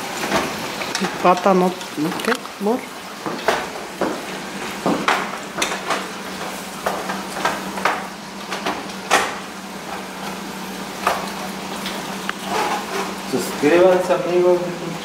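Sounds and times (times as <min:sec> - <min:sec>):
vegetables sizzling: 0:00.0 - 0:15.0
spatula scraping a pan: 0:12.4 - 0:13.2.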